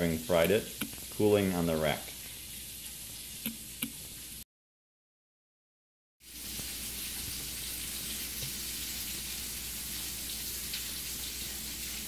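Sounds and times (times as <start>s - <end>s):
steady hiss: 0.0s - 4.4s.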